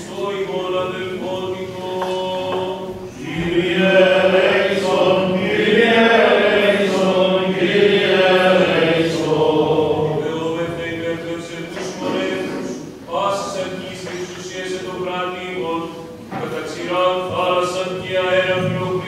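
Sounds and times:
several voices chanting: 0:00.2 - 0:14.2.

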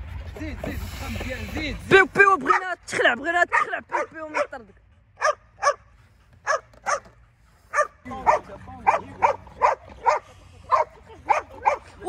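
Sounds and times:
dog barking: 0:03.5 - 0:04.6, 0:05.2 - 0:11.9.

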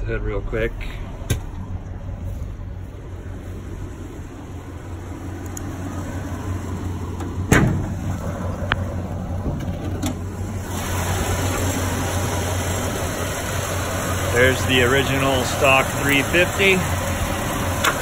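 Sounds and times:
car engine idling: 0:00.0 - 0:18.0
hood popping open clunk: 0:01.2 - 0:01.6, 0:07.1 - 0:10.5, 0:17.7 - 0:18.0
light clicks: 0:05.4 - 0:05.7.

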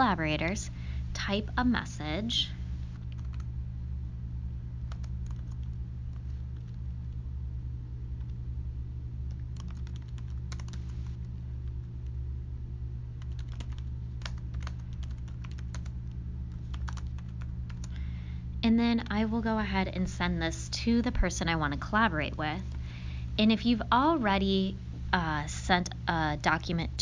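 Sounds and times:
steady low hum: 0:00.0 - 0:27.0
typing on computer keyboard: 0:03.0 - 0:03.5, 0:04.9 - 0:06.8, 0:09.3 - 0:10.8, 0:13.2 - 0:16.0, 0:16.7 - 0:17.9.

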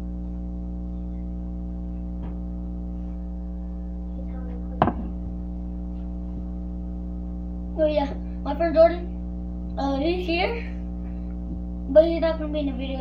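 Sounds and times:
electrical mains hum: 0:00.0 - 0:13.0
sharp knock: 0:04.8 - 0:05.2.

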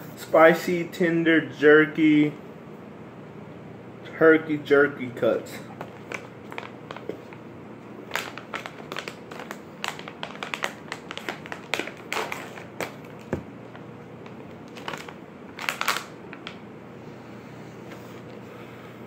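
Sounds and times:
plastic pouch crinkling: 0:05.8 - 0:07.4, 0:08.0 - 0:16.6.

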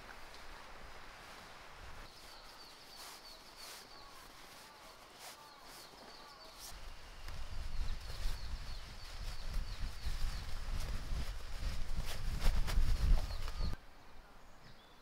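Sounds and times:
birds chirping: 0:02.1 - 0:10.9.

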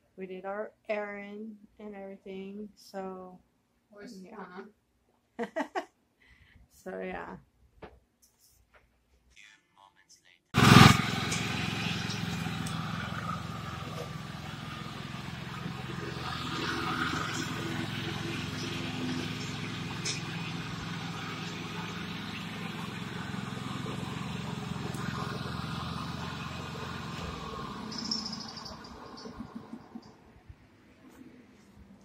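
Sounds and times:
lawn mower engine running: 0:10.6 - 0:30.3.

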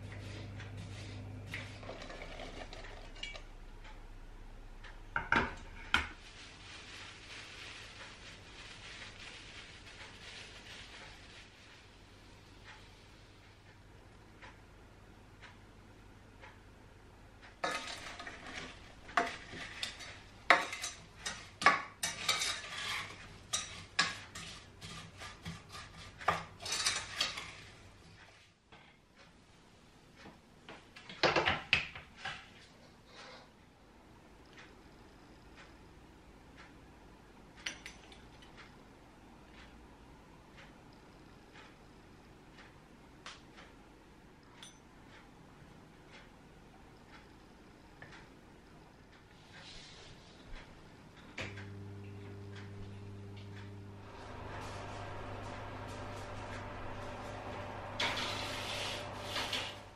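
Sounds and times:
metal colander and saucepan clanking: 0:01.6 - 0:03.5, 0:17.6 - 0:25.6, 0:26.3 - 0:27.7
spoon clinking and scraping pan: 0:01.8 - 0:03.5, 0:17.6 - 0:27.7.

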